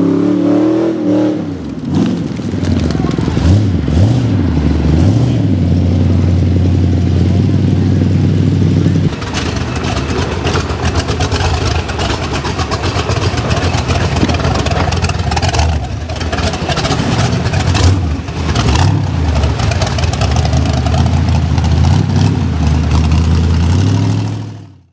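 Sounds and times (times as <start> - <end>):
buggy engine revving: 0.0 - 24.9.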